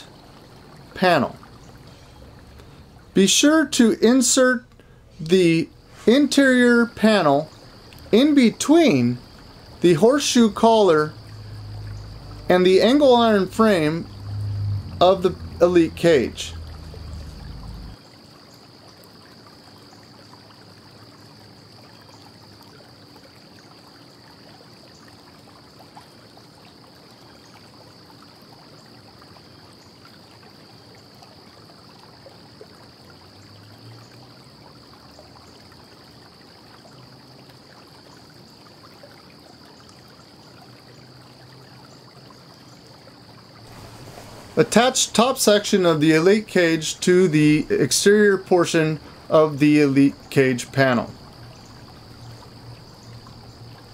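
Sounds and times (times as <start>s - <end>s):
faint hum: 0.0s - 18.0s, 43.7s - 53.9s
steady low hiss: 0.0s - 18.0s, 43.4s - 53.9s
faint ticks: 7.5s - 8.1s.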